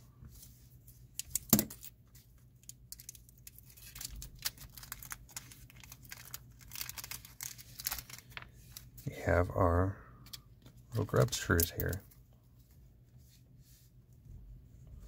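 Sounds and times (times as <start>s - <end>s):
small parts clicking and rustling: 1.1s - 2.0s, 2.6s - 9.0s, 10.2s - 12.2s.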